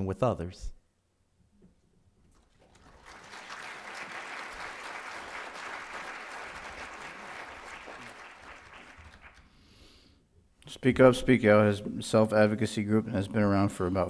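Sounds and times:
audience applauding: 0:02.3 - 0:09.6.

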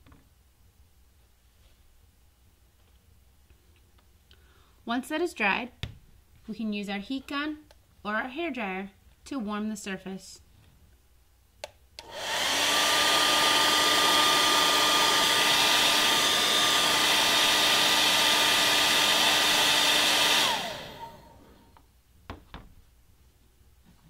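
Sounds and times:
hair dryer switch click: 0:11.6 - 0:12.6
hair dryer blowing: 0:12.0 - 0:21.6.

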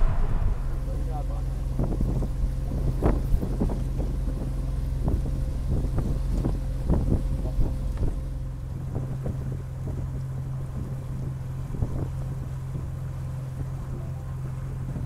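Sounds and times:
wind buffeting microphone: 0:00.0 - 0:07.8
outboard motor humming: 0:01.0 - 0:15.0.

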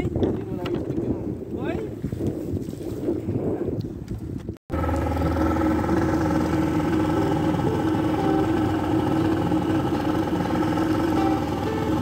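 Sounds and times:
outboard motor running: 0:04.7 - 0:12.0
water rushing: 0:04.8 - 0:12.0.

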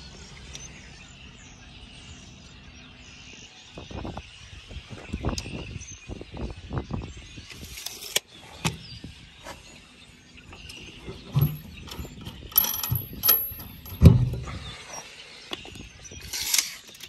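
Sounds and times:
bolt turned in wooden post: 0:10.6 - 0:14.6
metallic clicks and knocks of hardware: 0:10.6 - 0:14.6.

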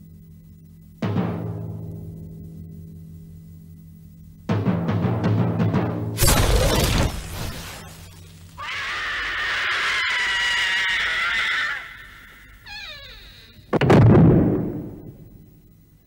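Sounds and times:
loud explosion: 0:06.2 - 0:08.1, 0:13.8 - 0:15.3
long high-pitched cry: 0:08.6 - 0:13.7
wavering falling cry: 0:08.6 - 0:13.7.

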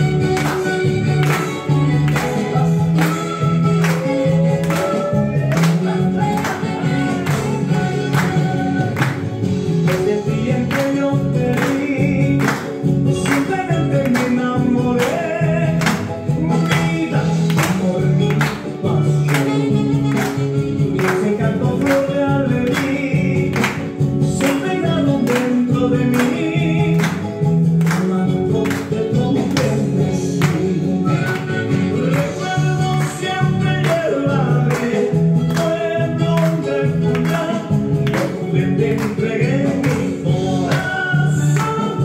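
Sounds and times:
dance music with driving beat: 0:00.0 - 0:42.0.

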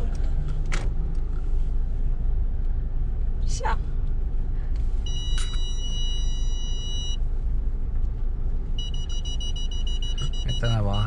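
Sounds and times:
car rumble on the move: 0:00.0 - 0:11.0
parking sensor beeps: 0:05.0 - 0:07.2, 0:08.8 - 0:11.0.

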